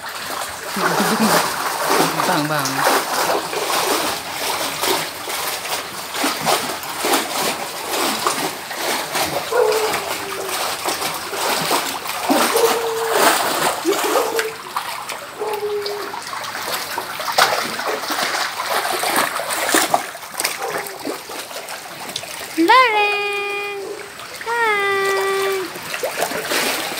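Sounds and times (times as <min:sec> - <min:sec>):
pool water splashing: 0:00.0 - 0:26.9
baby vocalizing: 0:09.5 - 0:10.6, 0:12.3 - 0:14.6, 0:22.6 - 0:25.7.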